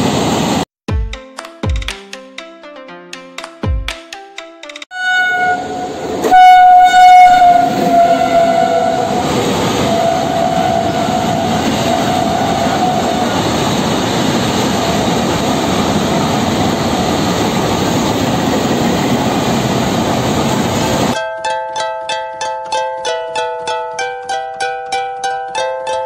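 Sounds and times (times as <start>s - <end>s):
locomotive horn: 4.9s - 13.5s.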